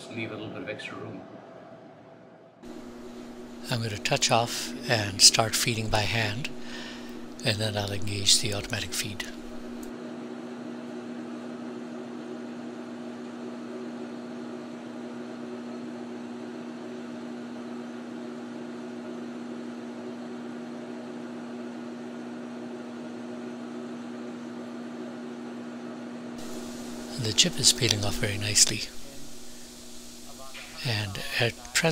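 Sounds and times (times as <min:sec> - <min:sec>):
lathe running: 0:02.6 - 0:09.9, 0:26.4 - 0:31.9.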